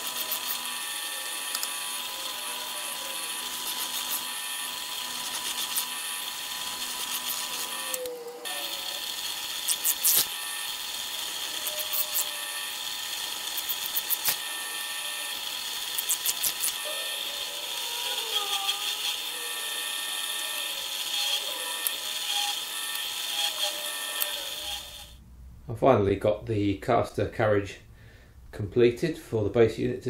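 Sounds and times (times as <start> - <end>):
drill bit clicks and rattles: 0.0 - 8.0, 9.2 - 14.5, 15.4 - 16.8, 20.5 - 25.1
pillar drill motor hum: 0.0 - 25.2.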